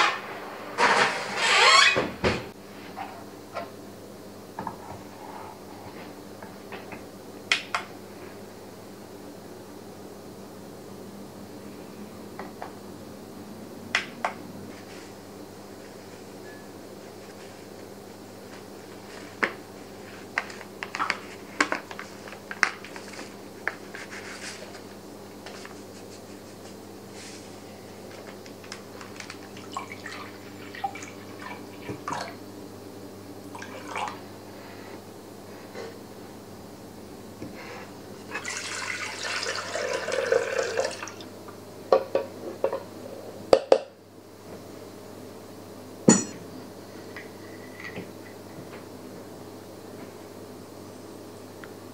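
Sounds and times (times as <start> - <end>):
faint steady hum: 1.8 - 51.9
bowl knocking against pan: 46.1 - 46.4.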